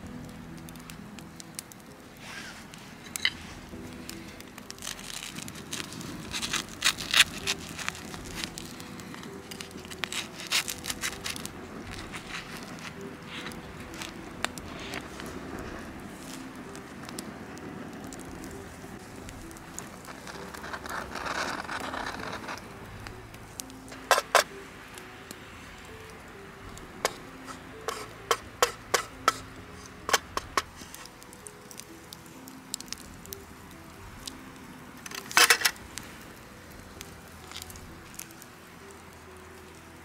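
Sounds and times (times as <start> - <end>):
soft background music: 0.0 - 40.0
wooden stick scraping metal pan: 2.2 - 3.6, 4.8 - 16.5, 19.7 - 22.8, 23.6 - 24.5, 27.0 - 31.2, 35.0 - 35.8.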